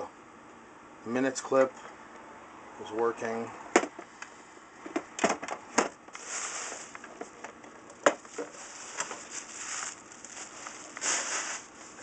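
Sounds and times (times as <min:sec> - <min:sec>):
plastic packing rustling: 0:06.1 - 0:07.4, 0:08.0 - 0:12.0.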